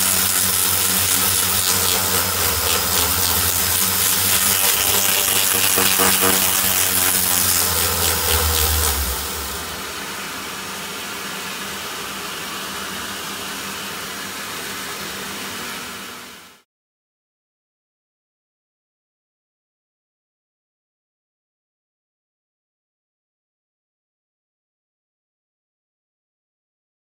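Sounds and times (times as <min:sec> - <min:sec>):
polisher motor hum with hiss: 0:00.0 - 0:16.6.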